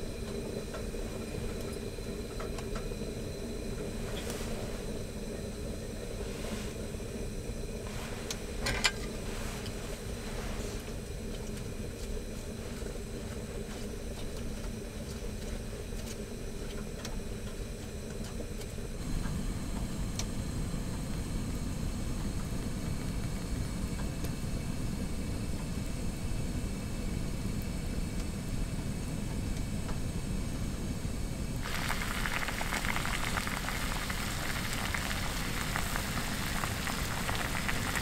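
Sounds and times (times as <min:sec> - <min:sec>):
gas stove burner hum: 0:00.0 - 0:38.0
pot ticking: 0:31.6 - 0:38.0.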